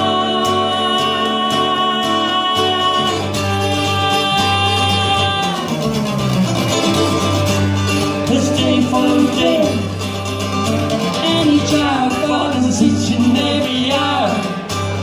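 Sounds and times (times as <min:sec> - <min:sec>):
woman singing: 0:00.0 - 0:05.7
acoustic guitar strumming: 0:00.0 - 0:15.0.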